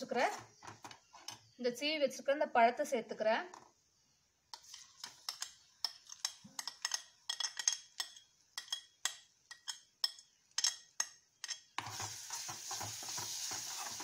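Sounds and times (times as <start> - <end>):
spoon clinking against plate: 4.5 - 11.8.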